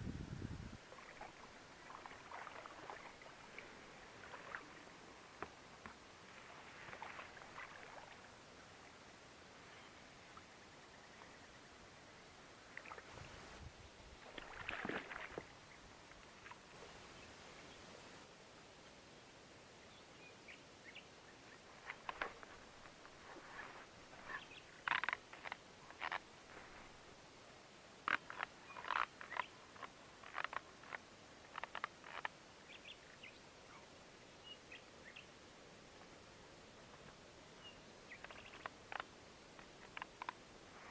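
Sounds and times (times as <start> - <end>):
faint steady hiss: 0.0 - 40.9
water splashing: 0.9 - 5.0, 6.2 - 8.3, 14.2 - 15.6.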